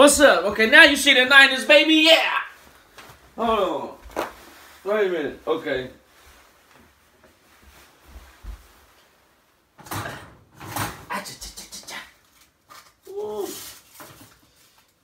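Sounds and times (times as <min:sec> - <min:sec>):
metal oven rack clattering: 0:09.8 - 0:11.1.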